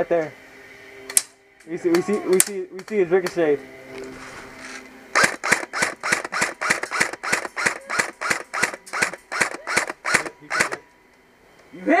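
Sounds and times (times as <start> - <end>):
airsoft rifle shots: 5.1 - 10.8.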